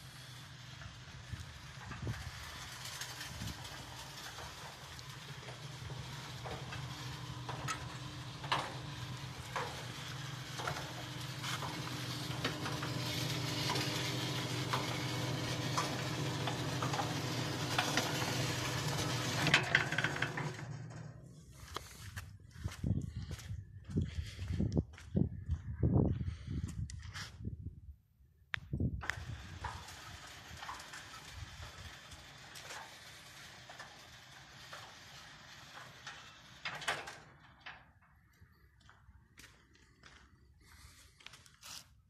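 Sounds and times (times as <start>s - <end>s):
gate motor humming: 0.0s - 21.4s, 29.0s - 38.0s.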